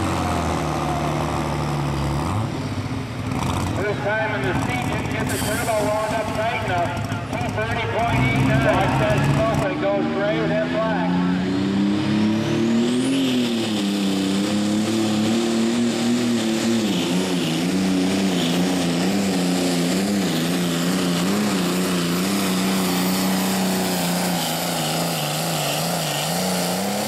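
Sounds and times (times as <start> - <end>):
tractor engine under full load: 0.0 - 27.0.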